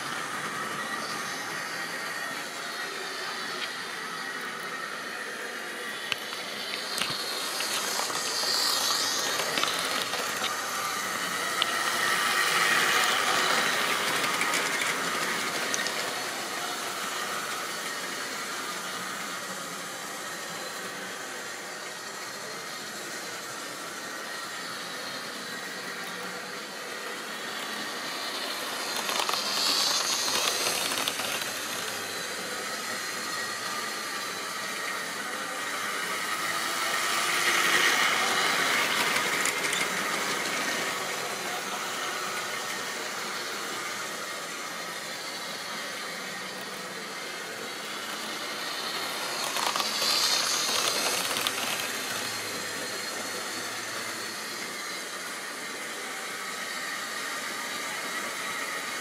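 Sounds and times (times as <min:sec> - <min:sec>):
model trains running on track: 0:00.0 - 0:59.0.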